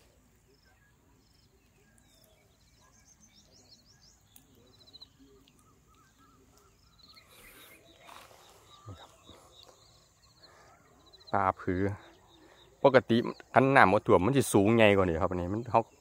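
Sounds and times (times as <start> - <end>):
birds chirping: 0.0 - 16.0
faint rustle: 4.3 - 11.0.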